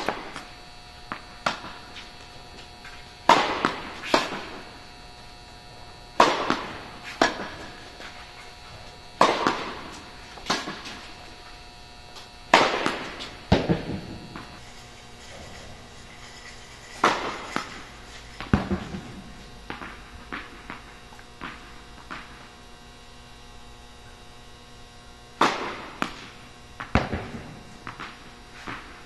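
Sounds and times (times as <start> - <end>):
tennis balls struck by rackets: 1.1 - 2.1, 2.8 - 5.0, 6.2 - 8.2, 9.2 - 11.2, 12.5 - 14.6, 17.0 - 22.5, 25.4 - 29.0
tennis balls bouncing on court: 2.8 - 4.8, 6.2 - 8.2, 9.2 - 11.2, 17.0 - 22.5.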